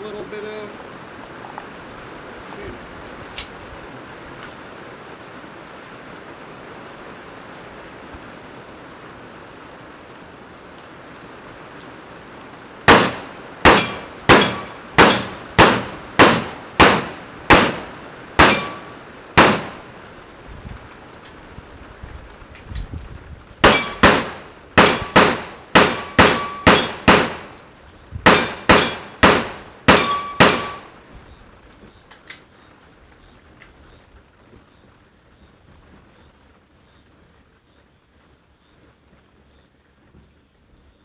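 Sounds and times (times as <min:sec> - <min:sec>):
steady rain: 0:00.0 - 0:41.0
steel target ringing: 0:12.9 - 0:17.7, 0:18.4 - 0:19.6, 0:23.6 - 0:27.4, 0:28.3 - 0:31.1
handgun shots: 0:12.9 - 0:19.8, 0:23.6 - 0:27.5, 0:28.3 - 0:30.9.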